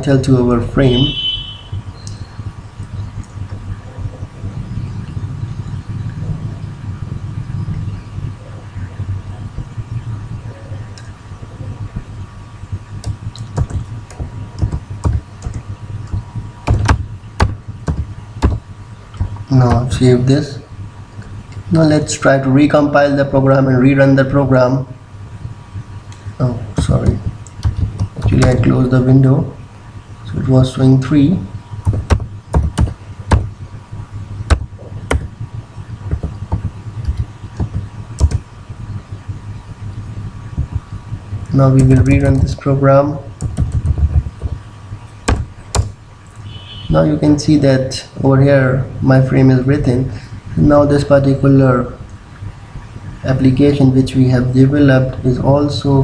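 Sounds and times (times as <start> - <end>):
steady low hum: 0.0 - 56.0
keyboard keys tapping: 12.7 - 20.0, 26.1 - 28.8, 31.8 - 33.6, 34.4 - 38.5, 40.5 - 42.7, 43.4 - 46.0.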